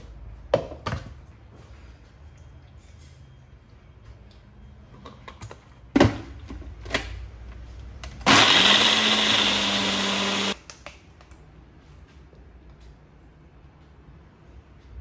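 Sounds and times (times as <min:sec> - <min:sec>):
blender motor running: 0:08.2 - 0:10.6.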